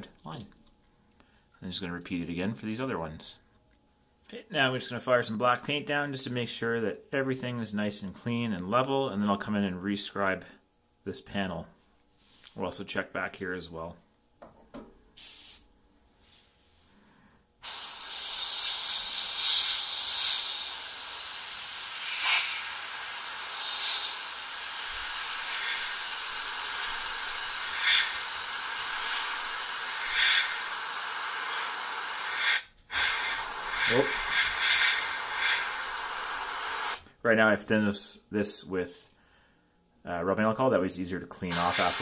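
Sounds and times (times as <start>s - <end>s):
airbrush spraying hiss: 15.2s - 16.5s, 17.6s - 37.0s, 41.5s - 42.0s.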